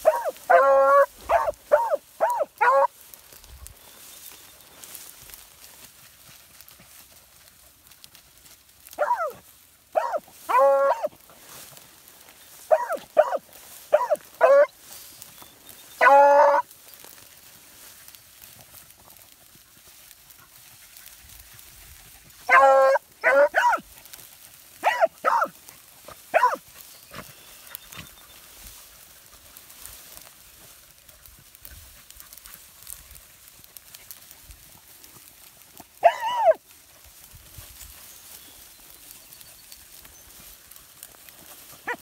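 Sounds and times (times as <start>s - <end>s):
hounds baying and barking: 0.0s - 3.1s, 8.9s - 17.5s, 19.0s - 30.2s, 35.3s - 36.6s, 37.8s - 42.0s.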